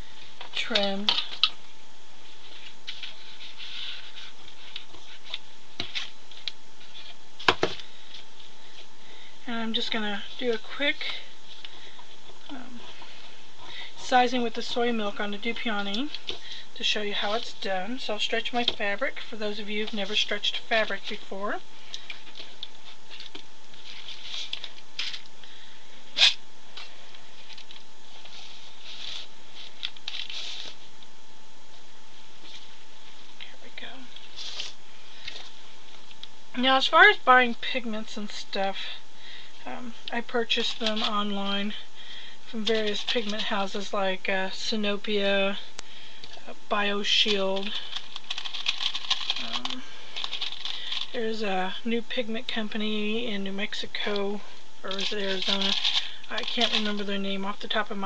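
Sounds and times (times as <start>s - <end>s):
fabric rustling and scraping: 2.1s - 7.4s, 26.2s - 31.0s, 34.2s - 36.0s.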